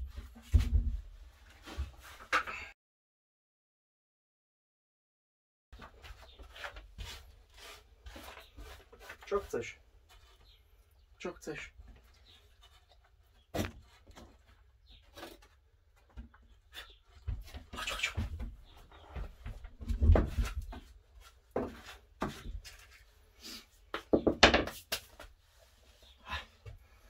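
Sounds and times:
objects knocking on wooden shelf: 0:24.0 - 0:24.9.

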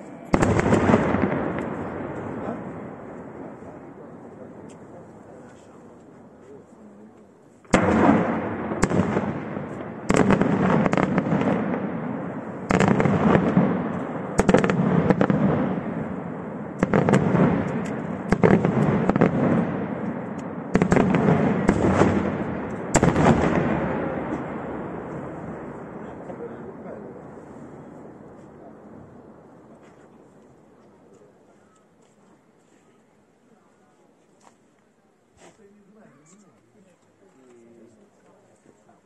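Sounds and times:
rumble after firework bang: 0:07.7 - 0:29.8.

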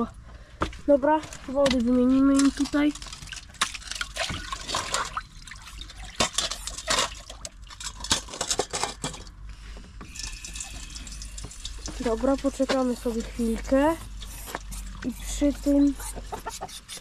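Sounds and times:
water splashing on wet ground: 0:02.3 - 0:08.2.

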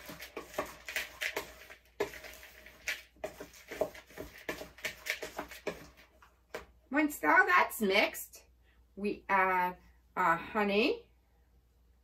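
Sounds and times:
spoon stirring dry oats in bowl: 0:00.0 - 0:06.7.

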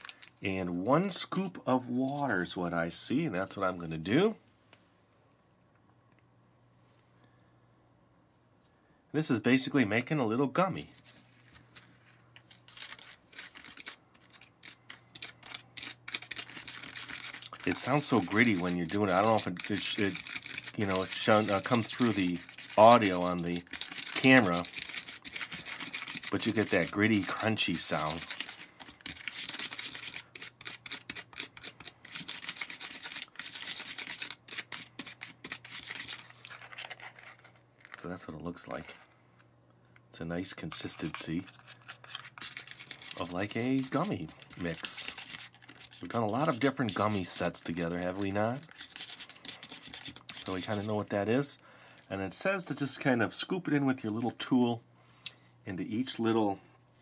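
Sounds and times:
spoon scraping gritty powder: 0:10.0 - 0:39.1, 0:40.5 - 0:51.2.

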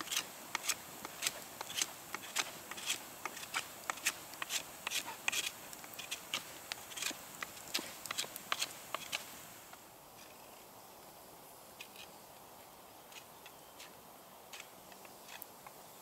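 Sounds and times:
knife scraping wood: 0:00.0 - 0:09.3, 0:13.1 - 0:15.4.

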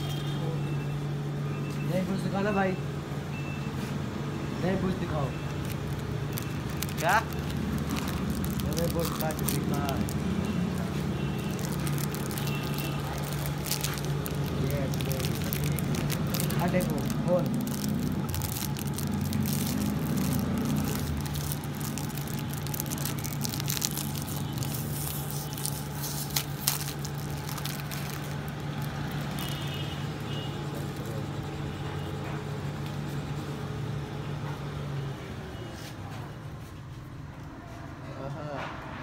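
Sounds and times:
plastic wrapping crinkling: 0:05.0 - 0:31.2.

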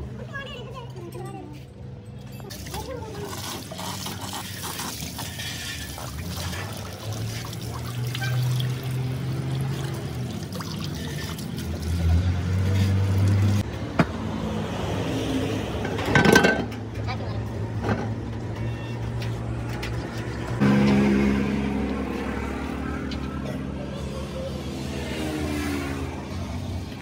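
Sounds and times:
hose water splashing into metal housing: 0:02.5 - 0:13.6
rag scrubbing: 0:02.7 - 0:08.5.

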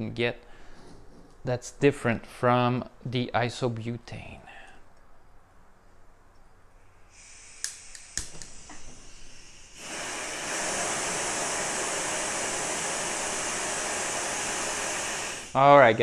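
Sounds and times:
gas burner rushing: 0:06.8 - 0:16.0
gas hissing from stove burner: 0:06.8 - 0:16.0
lighter clicks: 0:07.2 - 0:08.8.

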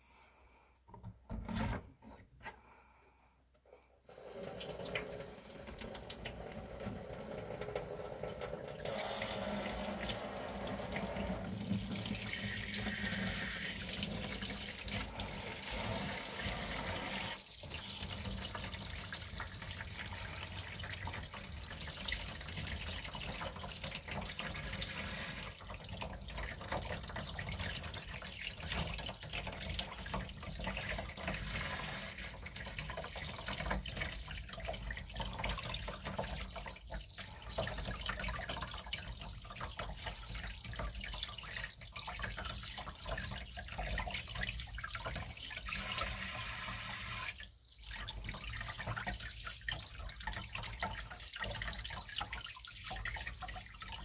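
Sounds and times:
sink spray head running: 0:08.8 - 0:11.6.

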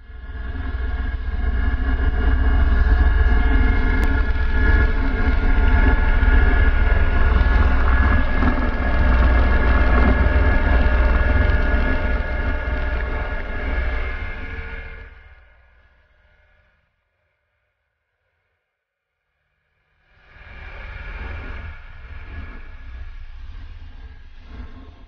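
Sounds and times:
helicopter turbine whine: 0:00.0 - 0:15.6
deep rotor rumble: 0:00.0 - 0:15.8, 0:20.3 - 0:25.0.

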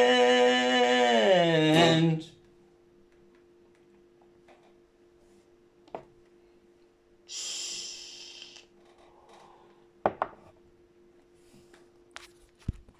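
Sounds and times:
faint steady hum: 0:00.0 - 0:12.9
breath blowing out vapour: 0:07.3 - 0:08.7.

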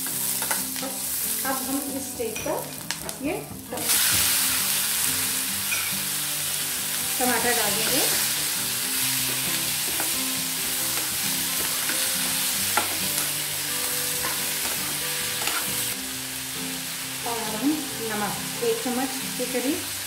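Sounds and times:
vegetables sizzling in oil: 0:00.0 - 0:20.0
metal spatula stirring: 0:14.2 - 0:15.7.

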